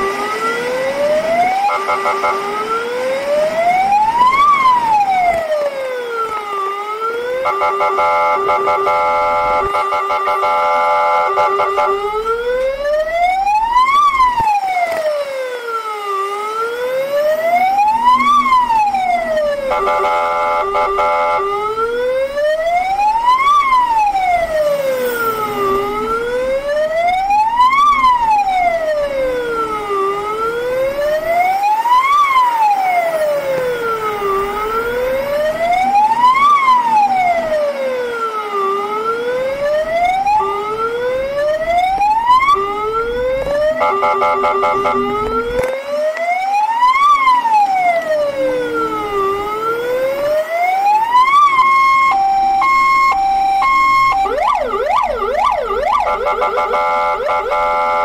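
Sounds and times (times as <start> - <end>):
fire truck siren wailing: 0.0 - 58.0
horn blast: 7.4 - 12.2, 19.6 - 21.4, 43.8 - 45.2.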